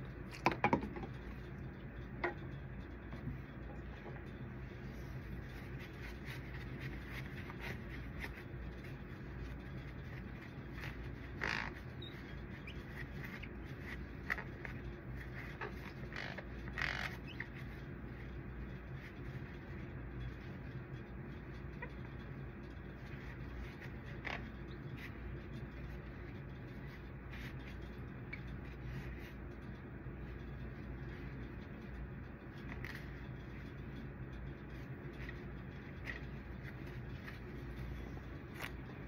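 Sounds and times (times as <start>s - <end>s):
steady low hum: 0.0s - 39.0s
cloth rubbing on drum: 4.2s - 17.7s.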